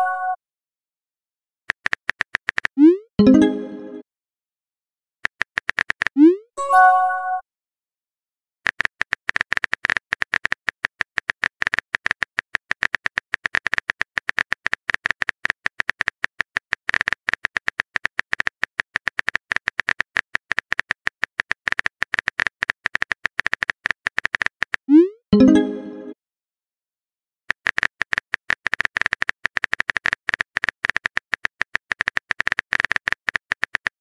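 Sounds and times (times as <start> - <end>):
phone keyboard typing clicks: 1.7 - 2.8, 5.2 - 6.2, 8.7 - 24.9, 27.5 - 34.0.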